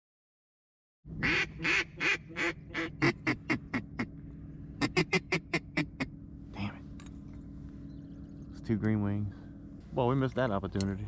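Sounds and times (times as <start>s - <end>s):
duck call quacks: 1.2s - 4.1s, 4.8s - 6.1s.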